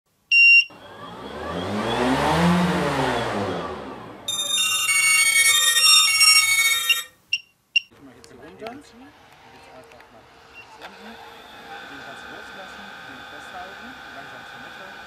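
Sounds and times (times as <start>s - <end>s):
electronic jingle: 4.2s - 7.4s
short electronic beep: 4.3s - 7.9s.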